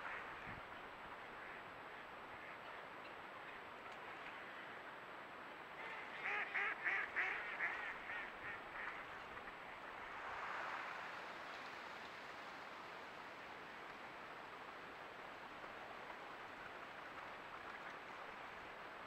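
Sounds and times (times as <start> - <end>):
duck quacking: 5.8 - 8.9.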